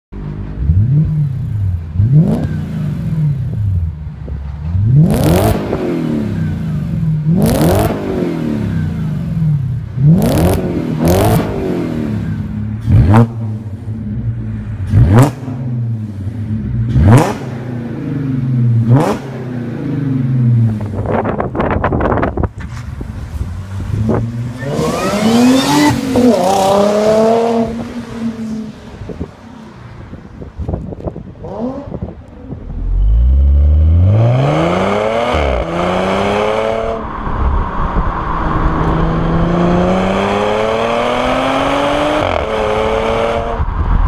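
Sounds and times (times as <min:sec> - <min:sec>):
car exhaust revving: 0:04.6 - 0:22.3, 0:31.4 - 0:44.0.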